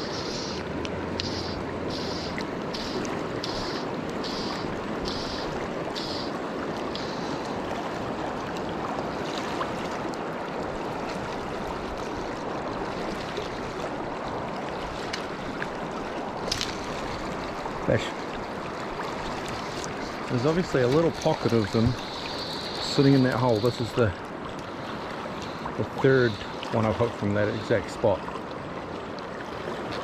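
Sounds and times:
river water rushing over stones: 0.0 - 30.0.

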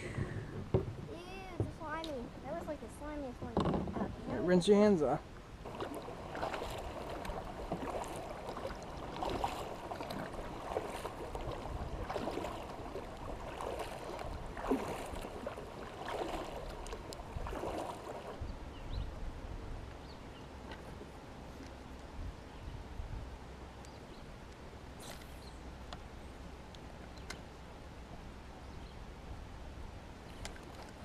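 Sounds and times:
water gurgling along hull: 0.0 - 31.0
paddle strokes swishing water: 5.6 - 18.6.

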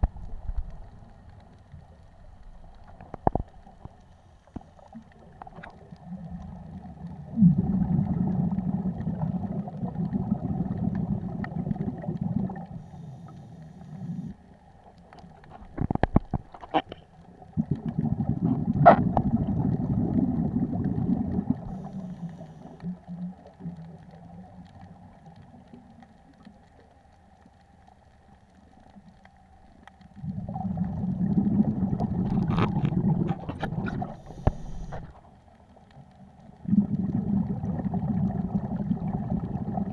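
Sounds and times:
underwater regulator bubbling: 4.6 - 14.4, 15.2 - 26.4, 30.1 - 35.2, 36.5 - 39.9.

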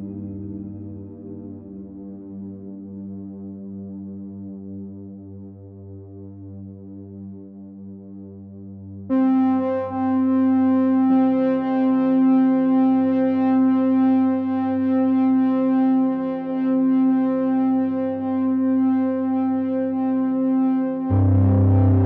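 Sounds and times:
synthesizer chords: 18.2 - 22.0.

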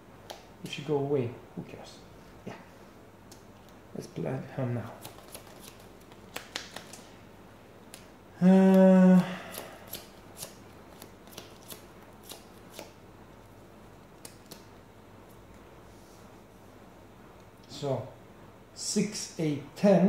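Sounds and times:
playing cards clicking and tapping: 5.0 - 7.1, 9.5 - 13.0.

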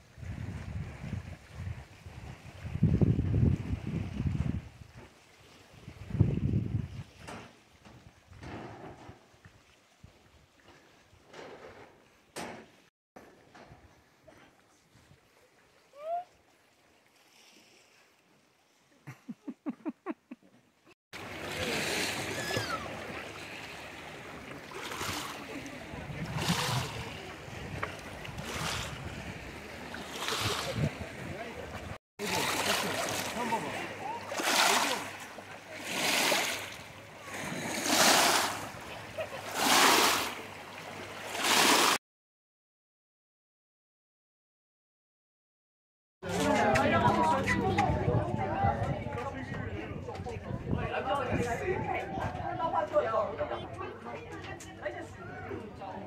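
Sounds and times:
lake water lapping on rock: 21.2 - 42.0.

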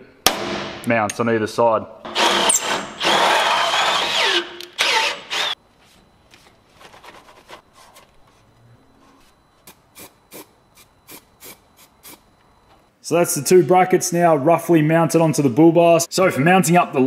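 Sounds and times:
cordless drill boring into metal: 2.1 - 5.6.

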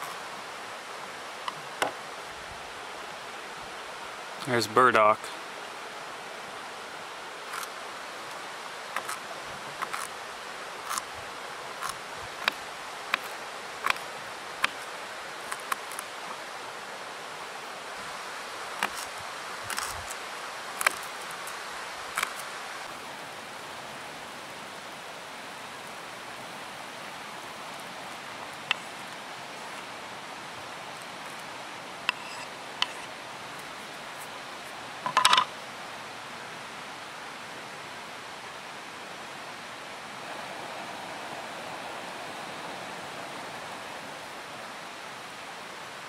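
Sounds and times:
steady hiss: 0.0 - 46.0
knife cutting on wooden board: 32.1 - 33.1.

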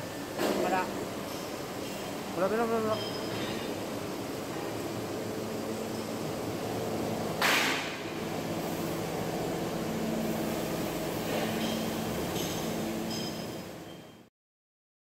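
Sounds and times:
workshop machinery hum: 0.0 - 14.3
faint high metallic rings: 2.8 - 3.7, 11.6 - 14.3.

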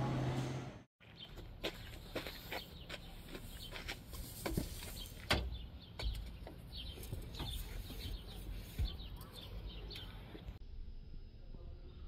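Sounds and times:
birds chirping: 1.0 - 10.6.

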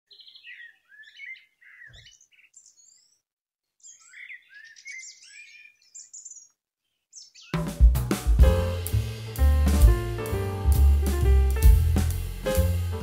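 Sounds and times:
songbird chirping and singing: 0.1 - 7.8.

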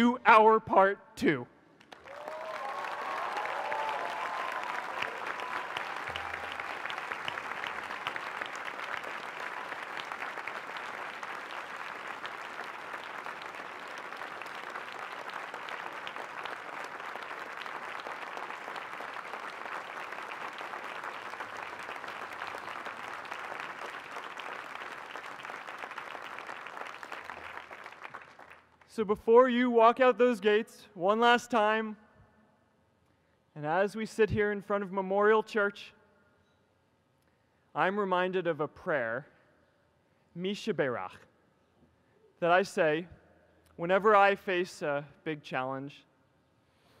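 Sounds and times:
crowd applauding: 1.8 - 28.8.

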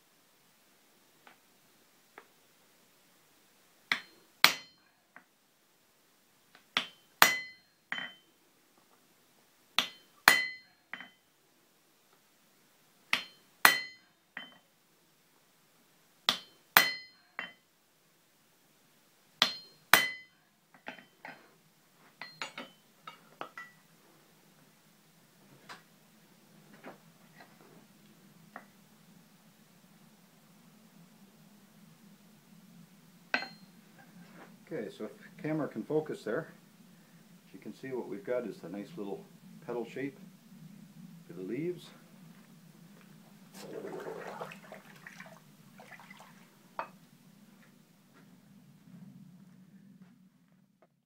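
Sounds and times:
hammer striking steel on anvil: 3.9 - 4.8, 6.8 - 8.2, 9.8 - 11.2, 13.1 - 14.6, 16.3 - 17.6, 19.4 - 20.3, 33.4 - 33.6
light metal clinks: 6.8 - 8.3.

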